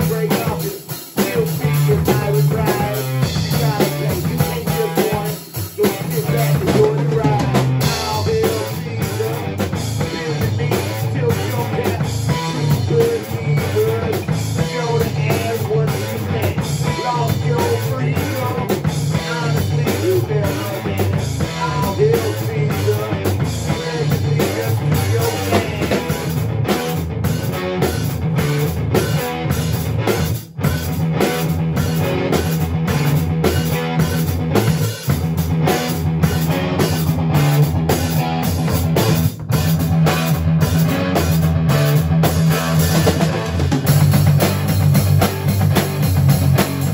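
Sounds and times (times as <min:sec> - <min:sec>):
man singing into microphone: 0:00.0 - 0:26.3
drum kit: 0:00.0 - 0:46.9
electric guitar: 0:00.0 - 0:46.9.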